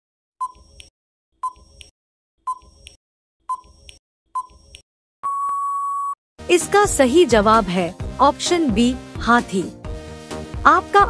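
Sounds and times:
long steady beep: 5.2s - 6.2s.

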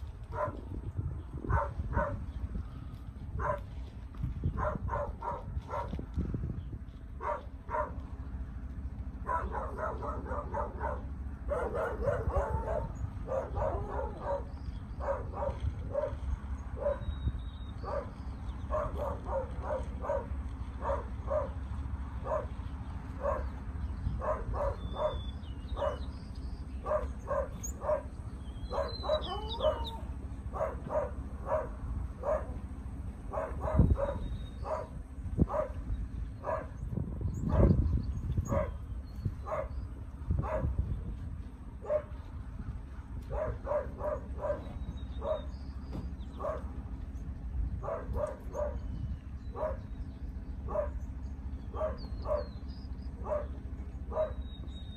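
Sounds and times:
dog barking: 0.3s - 0.6s, 1.5s - 2.2s, 3.4s - 3.7s, 4.6s - 6.0s, 7.2s - 8.0s, 9.2s - 16.2s, 16.8s - 17.1s, 17.8s - 21.6s, 22.2s - 22.6s, 23.2s - 23.5s, 24.2s - 25.2s, 25.8s - 26.1s, 26.8s - 32.6s, 33.3s - 35.8s, 36.4s - 36.8s, 37.4s - 37.8s, 38.5s - 38.8s, 39.4s - 39.8s, 40.4s - 40.8s, 41.8s - 42.2s, 43.3s - 45.5s, 46.4s - 46.7s, 47.8s - 48.9s, 49.5s - 49.8s, 50.6s - 51.0s, 51.7s - 52.5s, 53.2s - 54.4s.

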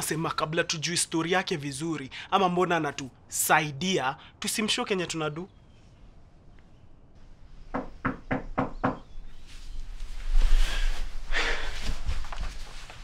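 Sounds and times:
knocks on a door: 7.8s - 9.1s
rustling: 9.3s - 13.0s.

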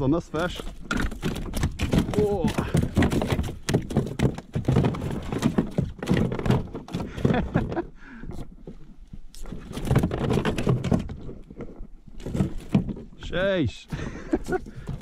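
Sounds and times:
sharp knocks and thuds: 0.3s - 8.8s, 9.4s - 15.0s
man laughing: 7.1s - 8.0s, 13.9s - 14.9s.

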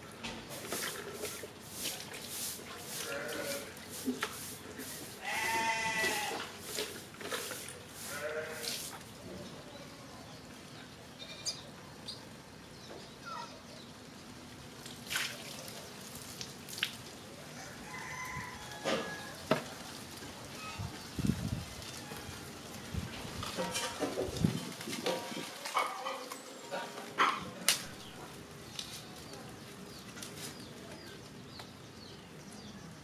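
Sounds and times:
goat bleating: 3.0s - 3.7s, 5.2s - 6.5s, 8.0s - 8.7s.

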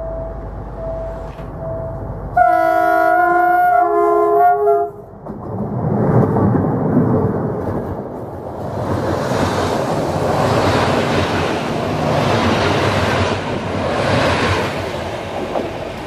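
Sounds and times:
train horn chord: 1.0s - 5.1s
loud rushing rumble: 5.1s - 16.0s.

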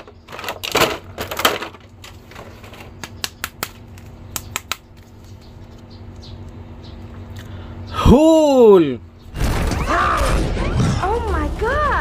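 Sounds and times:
sharp plastic clicks and snaps: 3.0s - 5.1s.

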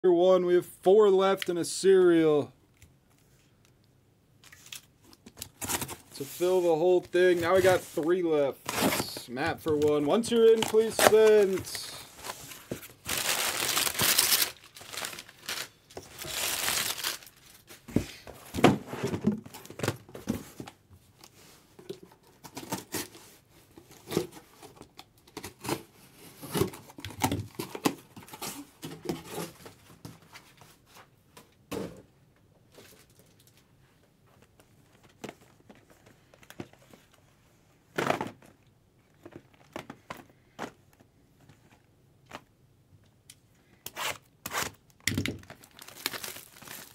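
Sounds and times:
wrapping crinkling and tearing: 7.4s - 17.8s, 43.9s - 46.9s.

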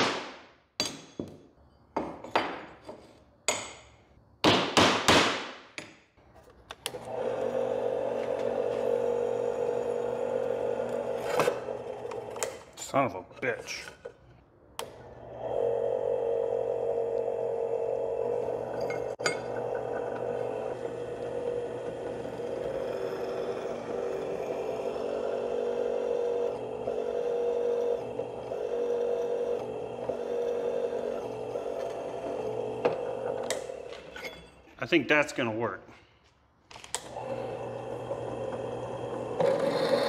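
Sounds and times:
drill press whining: 6.8s - 12.7s, 14.8s - 34.5s, 36.9s - 40.0s.

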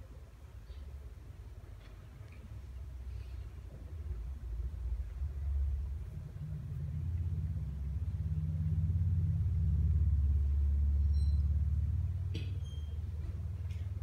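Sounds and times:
low rumble: 2.6s - 12.3s.

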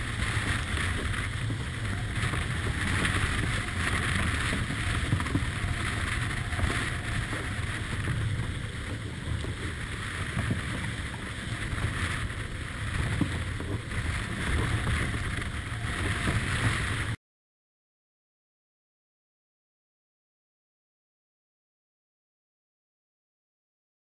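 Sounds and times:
water rushing along hull: 0.0s - 17.2s
wind buffeting microphone: 0.0s - 17.2s.

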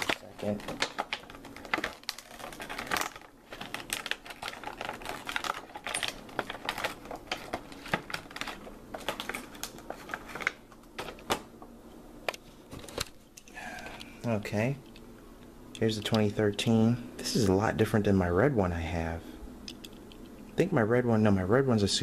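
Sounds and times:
plastic packaging crinkling: 0.0s - 11.5s.

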